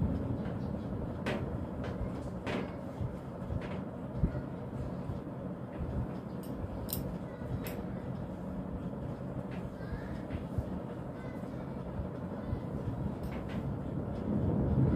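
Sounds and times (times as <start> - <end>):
steady low rumble: 0.0 - 14.9.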